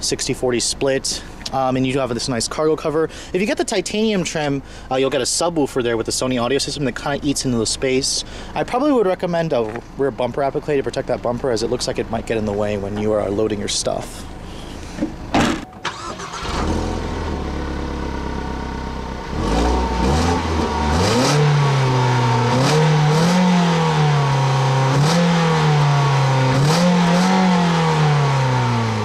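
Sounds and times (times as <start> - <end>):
car engine revving: 15.9 - 29.0.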